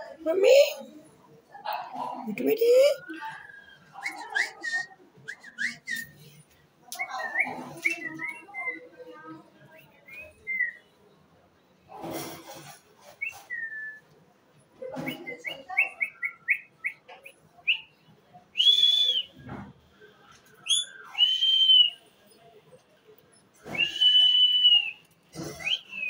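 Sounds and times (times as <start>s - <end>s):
parakeet whistling and calling: 15.4s - 17.1s, 20.6s - 21.4s.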